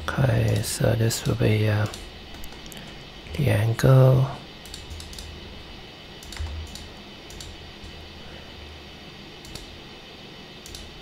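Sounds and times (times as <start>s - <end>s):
steady low hum: 0.0s - 11.0s
computer mouse clicks: 0.4s - 2.9s, 4.6s - 5.3s, 6.2s - 8.0s, 9.4s - 9.8s, 10.6s - 10.9s.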